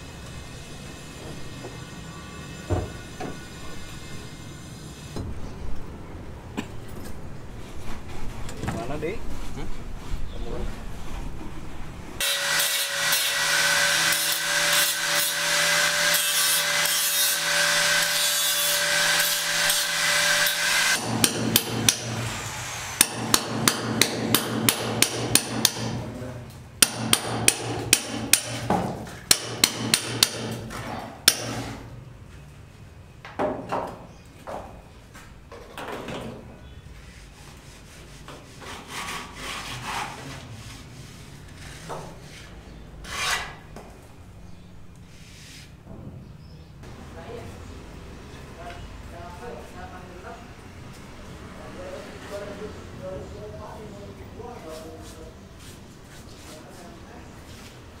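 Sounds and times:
tool scraping a wall: 0:37.0 - 0:43.6.

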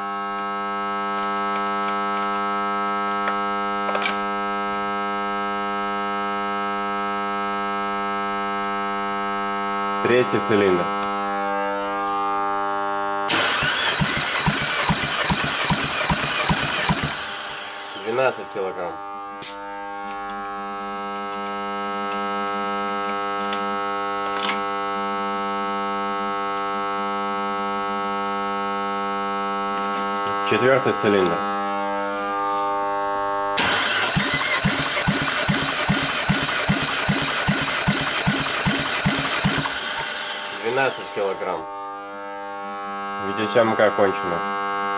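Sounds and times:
steady buzzing tone: 0:05.5 - 0:13.3, 0:15.1 - 0:24.2, 0:34.9 - 0:44.9
engine cranking over: 0:13.3 - 0:18.5, 0:33.6 - 0:41.4.

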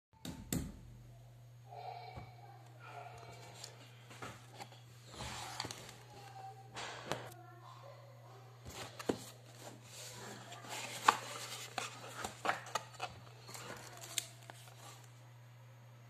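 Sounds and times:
paper and packing rustling: 0:03.3 - 0:06.5, 0:08.6 - 0:15.1.

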